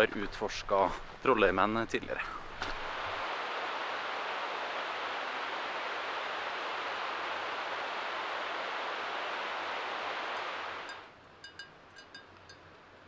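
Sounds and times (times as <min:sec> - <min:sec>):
steady rushing noise: 0:02.2 - 0:11.1.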